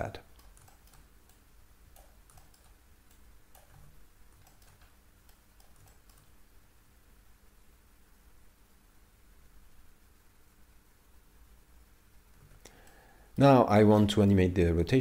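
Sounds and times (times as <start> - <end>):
keyboard and mouse clicks: 0.2 - 6.4.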